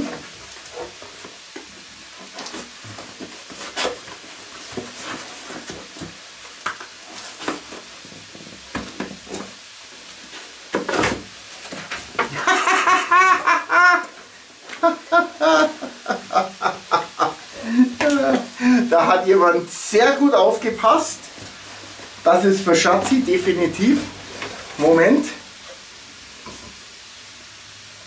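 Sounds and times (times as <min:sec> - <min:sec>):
cardboard parcel rustling and knocking: 0:00.0 - 0:12.5
vegetables sizzling in a pot: 0:00.0 - 0:28.0
man talking: 0:17.7 - 0:21.3, 0:22.2 - 0:24.2, 0:24.8 - 0:25.5.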